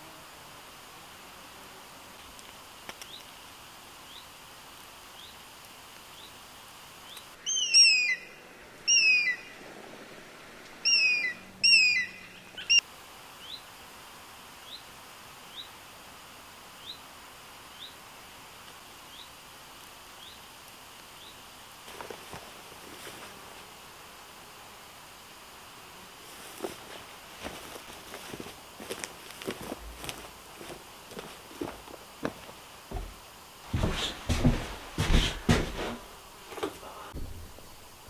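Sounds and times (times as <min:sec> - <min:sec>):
bird calling slurred notes: 0:07.1 - 0:09.8, 0:10.8 - 0:12.8.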